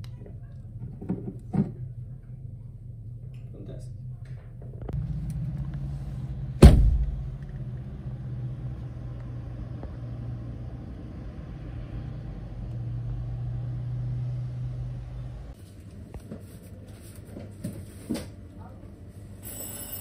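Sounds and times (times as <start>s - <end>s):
low rumble: 3.9s - 15.6s
car door slamming: 6.6s - 7.2s.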